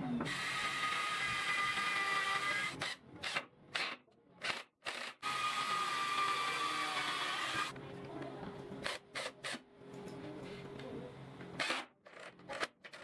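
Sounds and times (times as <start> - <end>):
electric drill driving screws: 0.3 - 3.9, 4.8 - 7.7.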